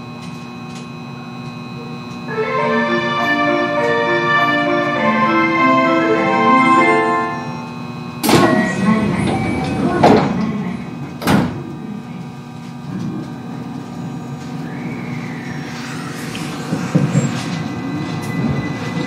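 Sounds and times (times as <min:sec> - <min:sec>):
electric train motor whine: 0:00.0 - 0:19.0
train car steady hum: 0:00.0 - 0:19.0
sliding train doors closing: 0:08.2 - 0:11.7, 0:12.9 - 0:19.0.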